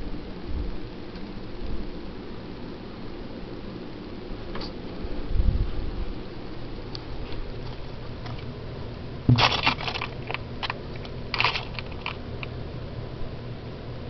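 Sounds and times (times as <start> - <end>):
handling noise crackling and clicks: 9.3 - 12.6.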